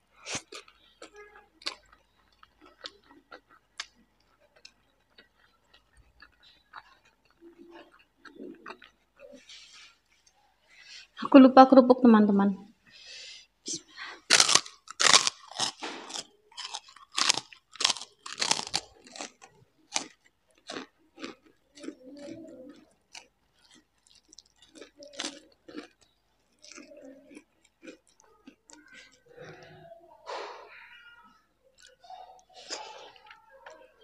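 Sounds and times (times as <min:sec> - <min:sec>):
soft chewing: 0:00.0 - 0:11.2, 0:12.7 - 0:34.0
crunching bites of cracker: 0:14.2 - 0:29.2.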